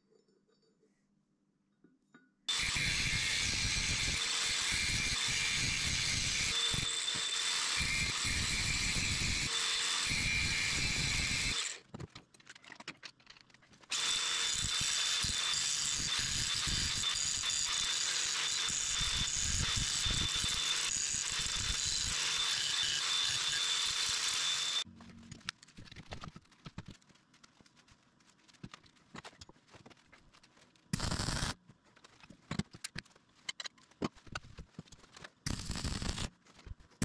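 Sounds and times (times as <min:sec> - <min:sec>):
angle grinder grinding metal: 0:02.5 - 0:11.8, 0:13.9 - 0:24.9, 0:31.0 - 0:31.6, 0:35.5 - 0:36.3.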